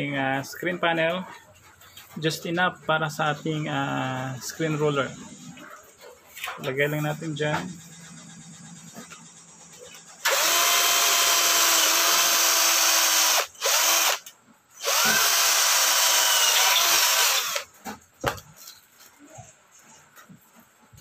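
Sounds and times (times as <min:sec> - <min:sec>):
power drill boring through metal: 0:10.2 - 0:17.7.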